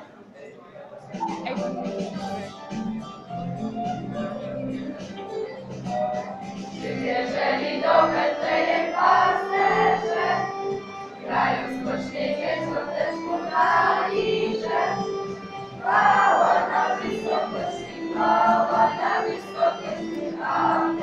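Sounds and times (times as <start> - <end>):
children singing a carol: 6.8 - 21.0.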